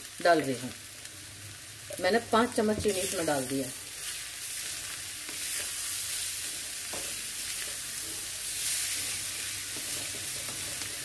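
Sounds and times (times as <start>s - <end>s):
carrots sizzling in fat: 0.0s - 11.0s.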